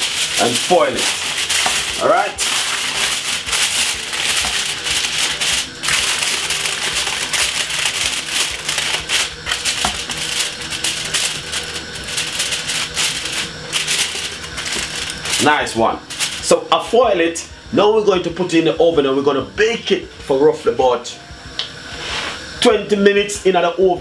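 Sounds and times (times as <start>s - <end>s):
aluminium foil crinkling: 0.0s - 16.6s.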